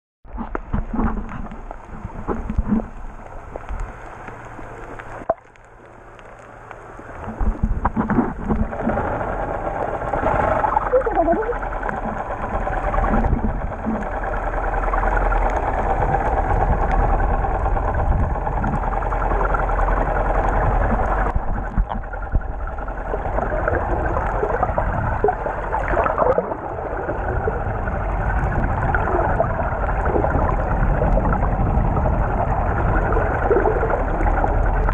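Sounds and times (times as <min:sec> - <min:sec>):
muffled underwater water rushing: 0:00.2 - 0:34.9.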